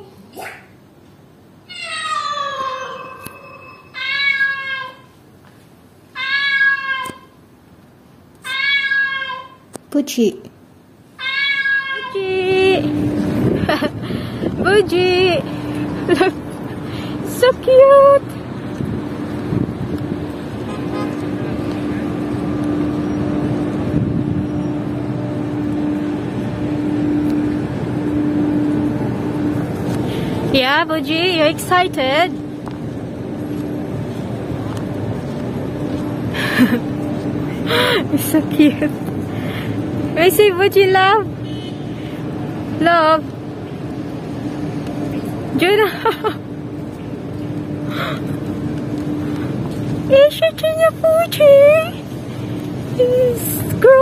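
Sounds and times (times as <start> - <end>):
constant hum: 0.0 - 54.0
cat meowing: 1.7 - 5.1, 6.2 - 7.3, 8.4 - 9.6, 11.2 - 12.2
car road and engine rumble: 12.2 - 54.0.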